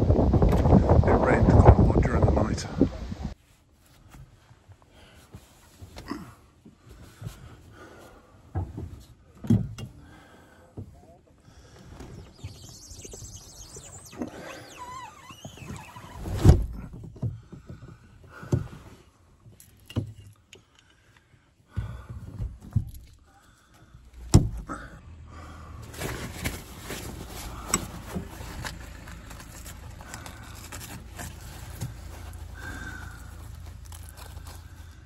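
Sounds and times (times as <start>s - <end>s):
wind rumbling on microphone: 0.0s - 3.4s.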